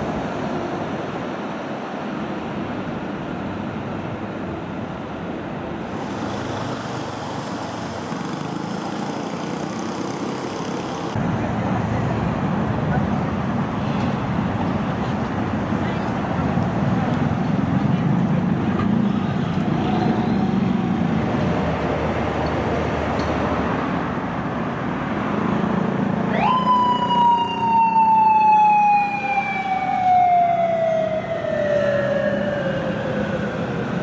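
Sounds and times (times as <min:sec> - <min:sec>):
street traffic noise: 0:00.0 - 0:34.0
police motorcycle siren wailing: 0:26.3 - 0:34.0.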